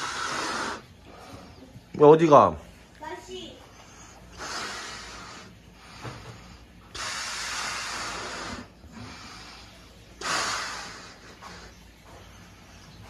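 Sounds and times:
breath blown out: 0:00.0 - 0:00.9, 0:06.9 - 0:09.2, 0:10.2 - 0:11.6.

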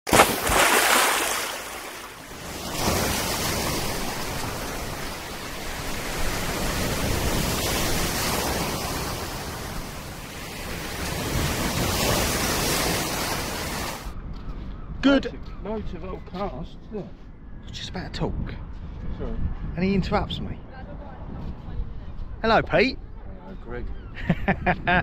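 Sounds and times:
surf breaking and washing in: 0:00.1 - 0:14.1.

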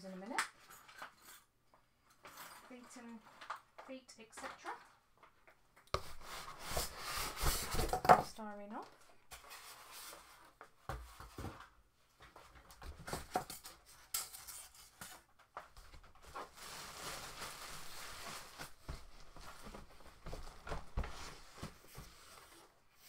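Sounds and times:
packaging rustling and scraping: 0:02.2 - 0:03.8, 0:06.0 - 0:08.1, 0:09.3 - 0:11.6, 0:12.5 - 0:22.8.

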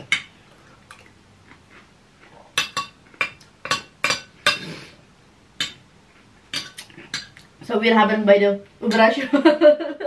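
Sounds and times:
cutlery clinking on a plate: 0:02.6 - 0:04.7.

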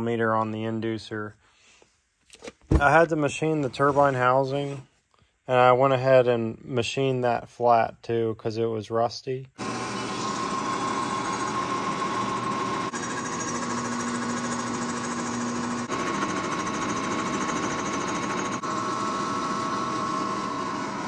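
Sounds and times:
milling machine cutting metal: 0:09.6 - 0:21.0.

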